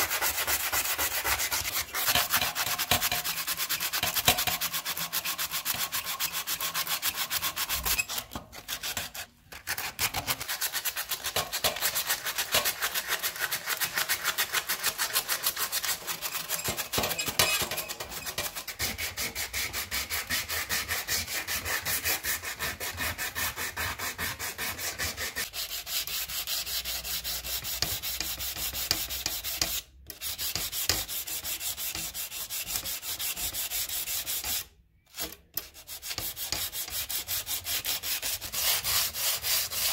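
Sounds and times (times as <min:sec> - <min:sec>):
sandpaper scraping metal blade: 0:00.0 - 0:39.9.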